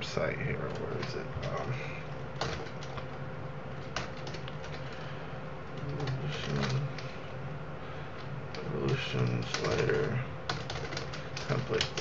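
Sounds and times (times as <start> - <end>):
steady low hum: 0.0 - 12.0
computer keyboard typing: 0.6 - 5.1, 5.7 - 7.1, 8.5 - 12.0.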